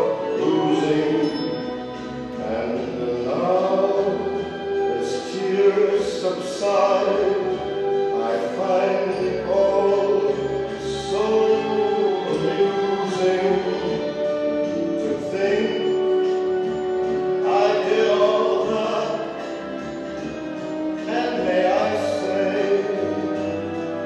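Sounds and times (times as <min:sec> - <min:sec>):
instrumental accompaniment: 0:00.0 - 0:24.0
person singing long notes: 0:02.2 - 0:16.6.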